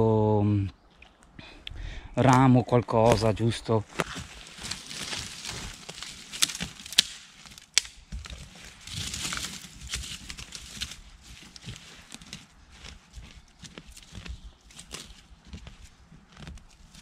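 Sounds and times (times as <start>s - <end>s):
stick digging in soil and litter: 3.0s - 17.0s
dry twigs snapping: 3.9s - 15.2s.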